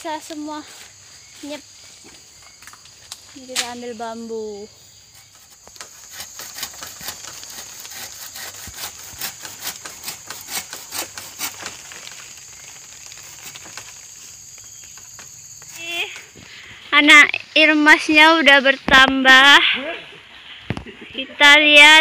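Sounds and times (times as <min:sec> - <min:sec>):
hand saw cutting bamboo: 0:05.2 - 0:11.9.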